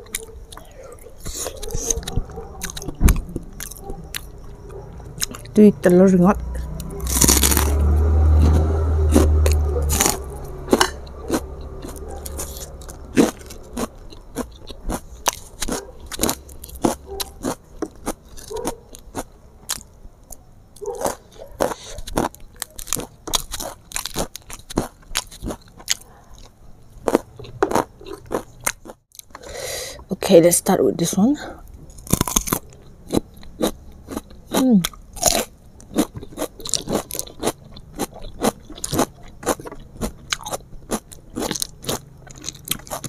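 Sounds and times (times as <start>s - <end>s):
chewing with sharp crunches: 0.0s - 29.5s, 31.6s - 43.0s.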